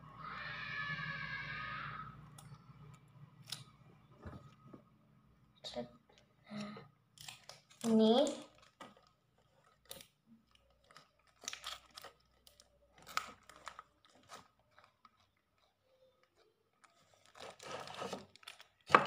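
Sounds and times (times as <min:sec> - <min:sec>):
plastic packet crinkling: 0:07.2 - 0:19.0.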